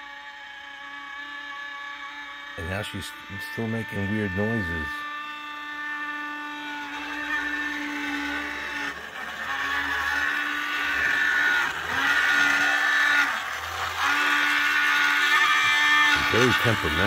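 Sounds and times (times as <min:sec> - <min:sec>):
model train motor whining: 0:00.0 - 0:17.0.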